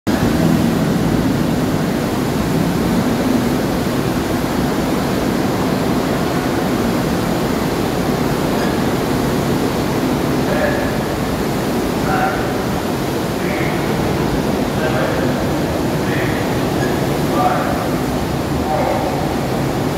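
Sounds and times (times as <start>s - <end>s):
churning seawater rushing: 0.1s - 19.9s
low engine drone: 0.1s - 19.9s.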